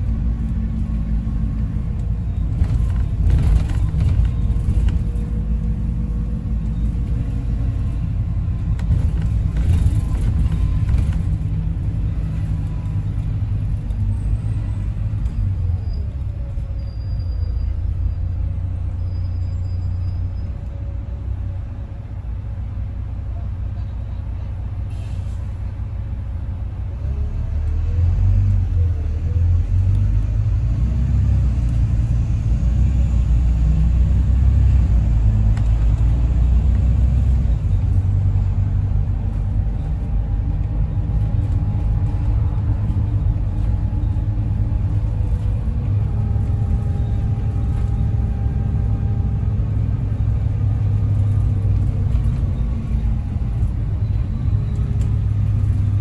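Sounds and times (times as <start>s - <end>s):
bus engine rumbling: 0.0s - 56.0s.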